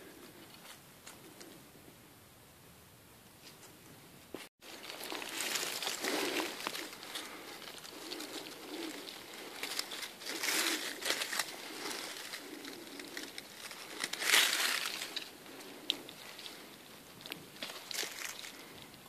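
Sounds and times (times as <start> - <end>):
dry leaves rustling and crackling: 4.6 - 19.0.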